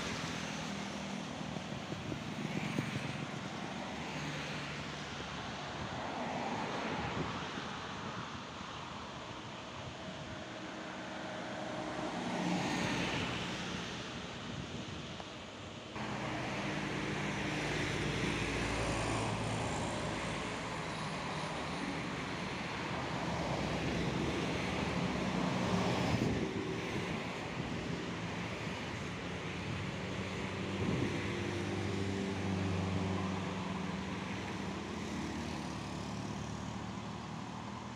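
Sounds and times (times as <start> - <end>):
road traffic passing: 0.0 - 37.9
motorcycles passing: 16.0 - 37.8.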